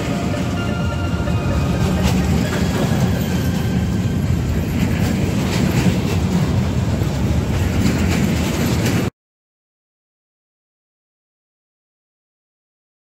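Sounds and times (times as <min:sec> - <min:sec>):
freight train rumbling past: 0:00.0 - 0:09.1
wheels clacking over rail joints: 0:00.0 - 0:09.1.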